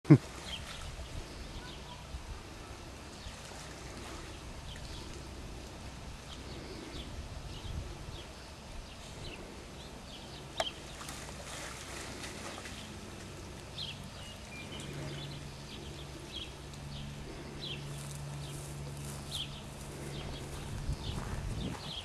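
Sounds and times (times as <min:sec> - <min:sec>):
dog splashing in wading pool: 0:00.2 - 0:05.4, 0:10.7 - 0:16.0.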